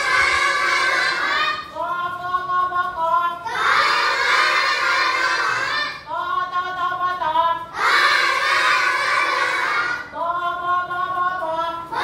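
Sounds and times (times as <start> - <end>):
children chanting in unison: 0.0 - 1.8, 3.4 - 6.1, 7.6 - 10.2, 11.3 - 12.0
woman chanting syllables: 0.0 - 12.0.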